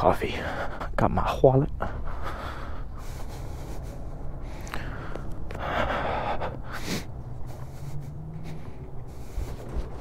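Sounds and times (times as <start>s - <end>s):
low rumble: 1.7s - 10.0s.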